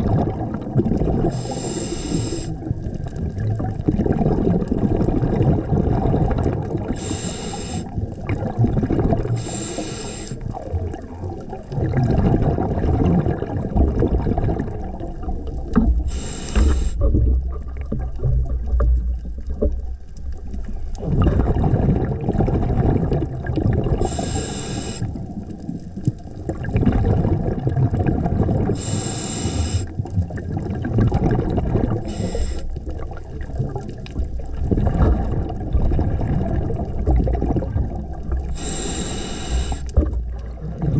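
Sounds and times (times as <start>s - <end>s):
bubbling exhaled air: 0.0s - 19.7s, 20.7s - 40.9s
regulator hissing inhalations: 1.3s - 2.6s, 7.0s - 7.9s, 9.4s - 10.4s, 16.1s - 17.0s, 24.0s - 25.2s, 28.8s - 29.9s, 32.0s - 32.8s, 38.5s - 40.0s.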